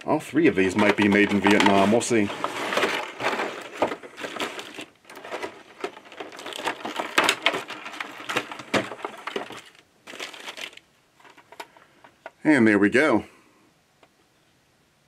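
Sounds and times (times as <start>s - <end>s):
plastic bag crinkling: 0.6s - 11.7s.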